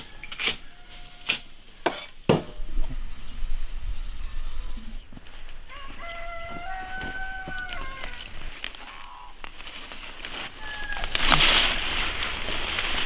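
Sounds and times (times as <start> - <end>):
rooster crowing: 0.0 - 1.3, 5.6 - 9.3, 10.5 - 11.4
rustling leaves of pulled plants: 5.2 - 13.0.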